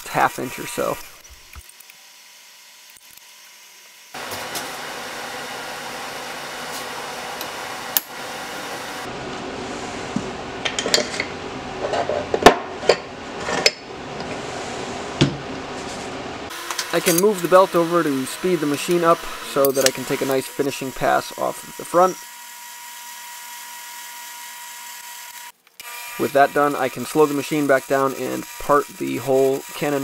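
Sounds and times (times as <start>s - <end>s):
metal tool holders clinking: 16.9s - 17.4s, 19.6s - 20.1s.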